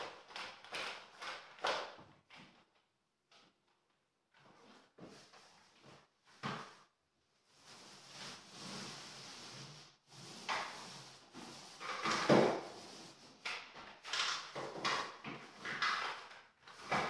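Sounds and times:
paint roller swishing on wall: 0:04.4 - 0:17.0.

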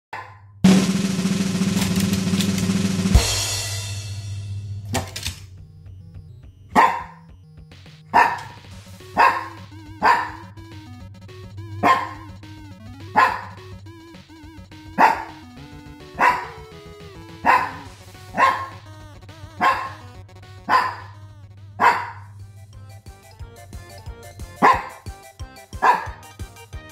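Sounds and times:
dog barking: 0:00.2 - 0:00.4, 0:06.7 - 0:07.2, 0:08.1 - 0:08.6, 0:09.2 - 0:10.4, 0:11.8 - 0:12.2, 0:13.2 - 0:13.6, 0:15.0 - 0:15.4, 0:16.2 - 0:16.6, 0:17.4 - 0:18.8, 0:19.6 - 0:20.0, 0:20.7 - 0:21.2, 0:21.8 - 0:22.3, 0:24.6 - 0:25.0, 0:25.8 - 0:26.2
background music: 0:00.6 - 0:26.9.

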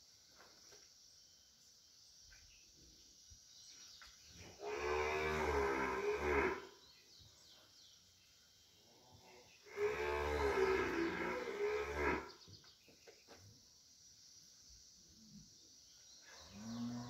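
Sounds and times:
cow mooing: 0:04.6 - 0:06.7, 0:09.7 - 0:12.3.

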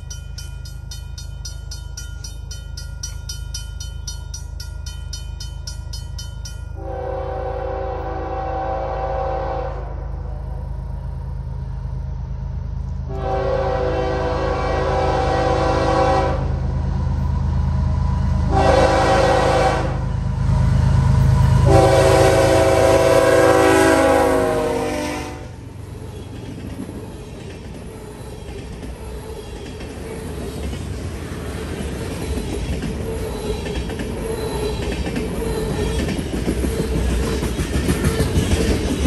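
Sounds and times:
locomotive engine rumble: 0:05.8 - 0:24.9
locomotive horn blasts: 0:06.8 - 0:10.1, 0:13.1 - 0:16.6, 0:18.5 - 0:20.1, 0:21.6 - 0:25.6
freight cars rattling on rails: 0:25.8 - 0:39.0.

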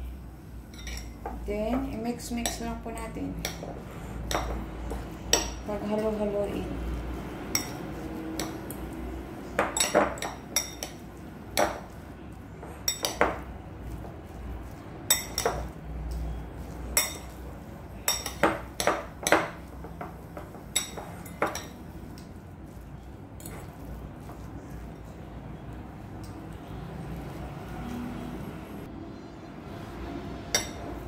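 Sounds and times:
fork clinking against ceramic bowl: 0:00.7 - 0:01.2, 0:07.5 - 0:08.9, 0:09.6 - 0:12.0, 0:12.7 - 0:13.5, 0:14.7 - 0:17.4, 0:18.0 - 0:19.7, 0:20.4 - 0:22.3, 0:30.5 - 0:31.0.

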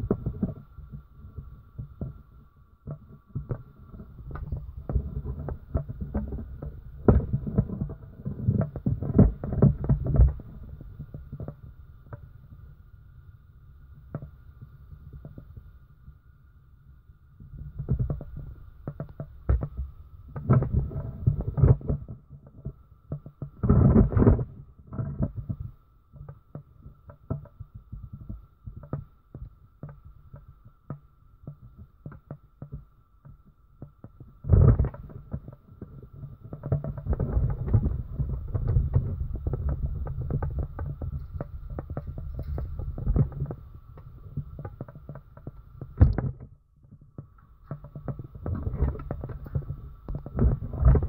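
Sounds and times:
low rumbling handling noise: 0:00.0 - 0:13.0, 0:31.5 - 0:51.0.

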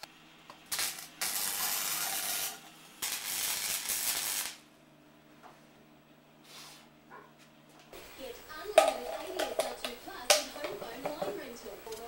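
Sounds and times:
arc welding crackling: 0:00.0 - 0:04.7.

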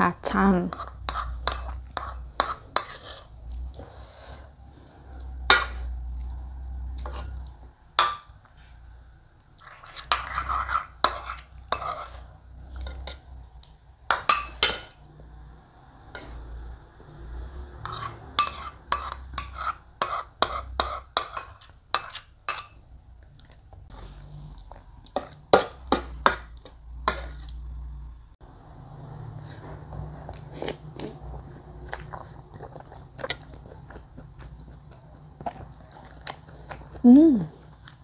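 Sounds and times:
metal spoon clinking on plate: 0:17.8 - 0:22.8
chewing: 0:29.4 - 0:38.0.

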